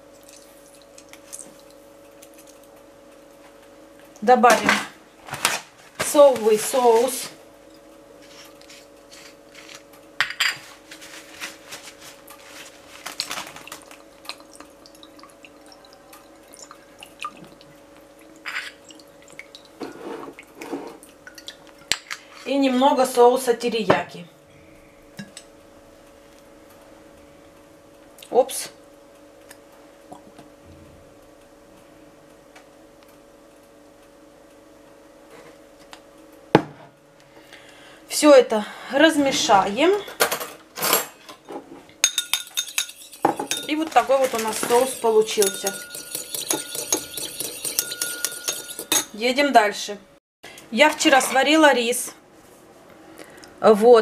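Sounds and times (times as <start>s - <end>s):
steady low hum: 0.0s - 53.8s
sauce dripping into bowl: 13.6s - 19.8s.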